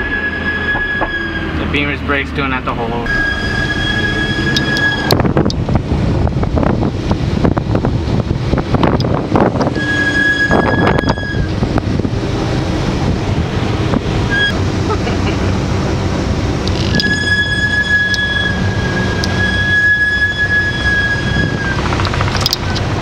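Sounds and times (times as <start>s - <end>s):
high brake squeal: 0.0s - 1.6s, 3.1s - 5.2s, 9.7s - 11.6s, 14.3s - 14.6s, 16.8s - 22.1s
car engine rumbling: 0.0s - 23.0s
wind on microphone: 3.5s - 14.8s, 16.2s - 23.0s.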